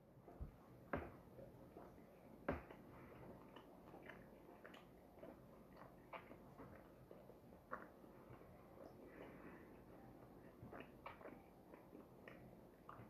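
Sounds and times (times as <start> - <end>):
soft chewing mouth clicks: 1.7 - 13.0.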